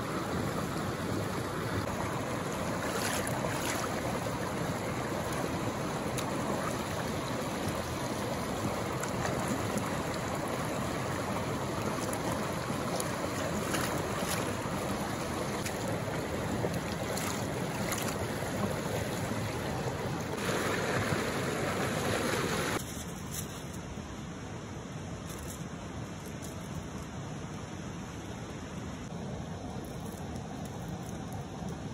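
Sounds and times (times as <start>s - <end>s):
stream rushing over rocks: 0.0s - 22.8s.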